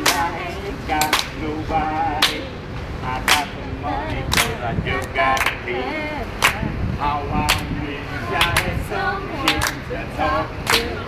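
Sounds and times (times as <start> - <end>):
hand claps: 0.0 - 0.3, 1.0 - 1.4, 2.2 - 2.4, 3.2 - 3.5, 4.3 - 4.6, 5.4 - 5.6, 6.4 - 6.6, 8.4 - 8.7, 9.5 - 9.8, 10.6 - 11.0.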